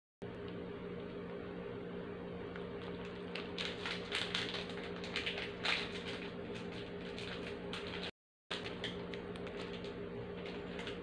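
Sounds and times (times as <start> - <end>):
plastic wrapper crinkling: 2.5 - 11.0.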